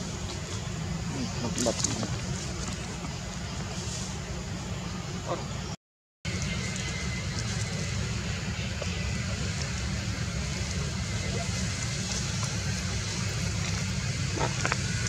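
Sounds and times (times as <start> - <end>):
low rumble: 6.3 - 15.0.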